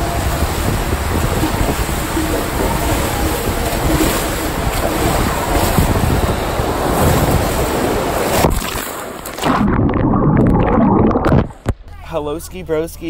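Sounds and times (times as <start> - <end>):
wind buffeting microphone: 0.0 - 8.6
water rushing and splashing: 0.0 - 11.7.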